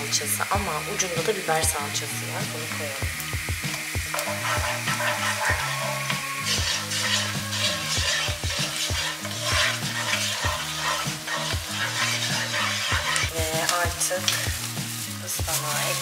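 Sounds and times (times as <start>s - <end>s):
onions sizzling in a frying pan: 0.0s - 16.0s
wooden spoon scraping a pan: 4.1s - 16.0s.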